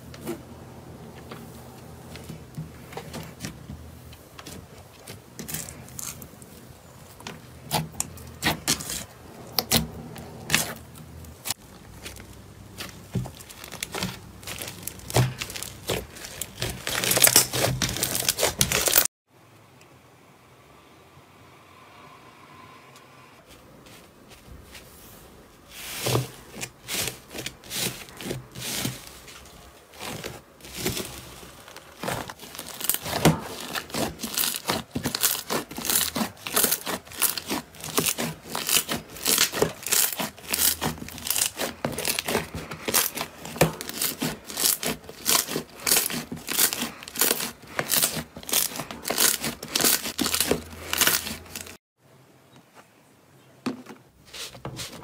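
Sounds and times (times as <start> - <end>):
slime crackling and popping: 11.4 - 19.1, 30.0 - 51.8.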